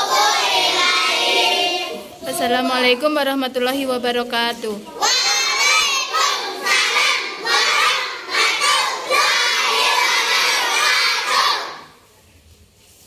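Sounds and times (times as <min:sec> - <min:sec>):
children chanting: 0:00.0 - 0:02.2, 0:05.0 - 0:12.0.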